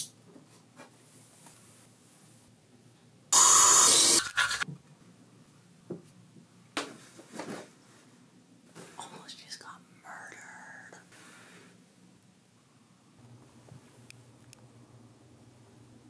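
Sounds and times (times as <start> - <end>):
faint rustles and handling: 0.3 - 2.6, 6.9 - 9.3.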